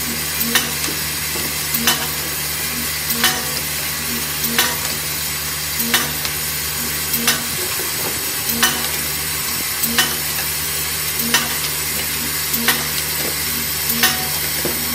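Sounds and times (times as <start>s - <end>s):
machine clacking: 0.0s - 14.9s
low hum: 1.7s - 14.3s.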